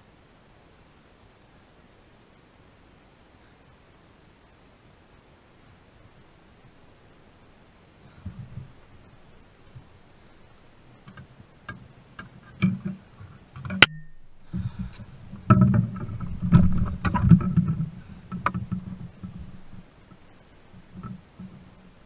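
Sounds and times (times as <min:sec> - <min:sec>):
clicks and knocks: 0:11.0 - 0:21.9.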